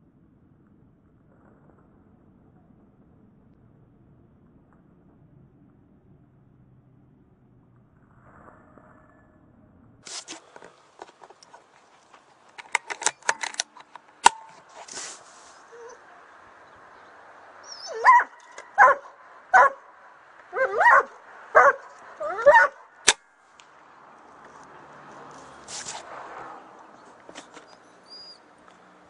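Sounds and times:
sharp click: 12.5s - 15.1s, 23.0s - 23.7s.

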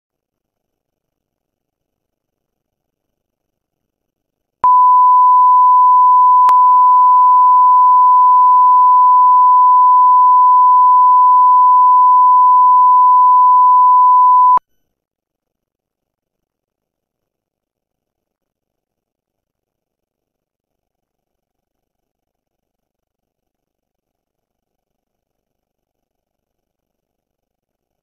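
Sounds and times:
steady test tone beep: 4.6s - 14.6s.

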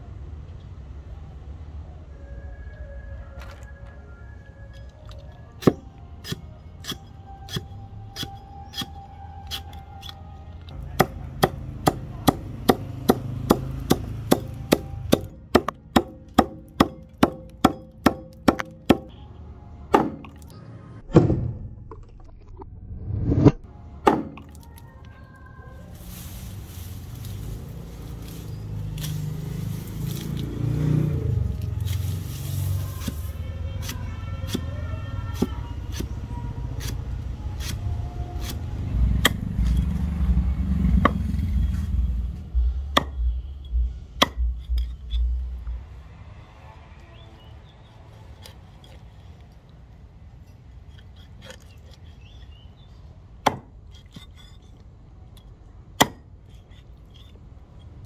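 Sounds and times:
axe chopping knocks: 19.9s - 20.4s, 24.0s - 24.5s, 43.0s - 43.2s, 44.2s - 44.9s, 53.4s - 53.7s, 56.0s - 56.2s.

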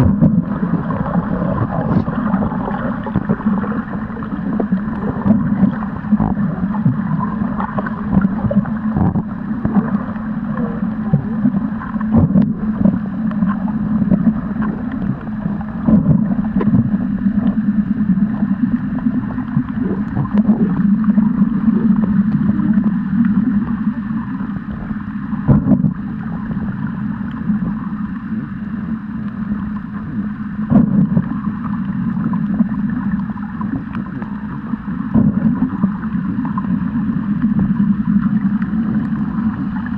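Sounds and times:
muffled underwater rumble and sloshing: 0.0s - 39.9s.

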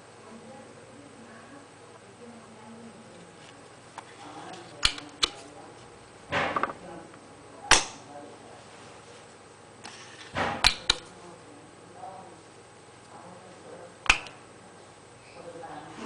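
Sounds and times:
desoldering pump clicks: 4.8s - 5.4s
spring plunger snap: 14.0s - 14.4s.

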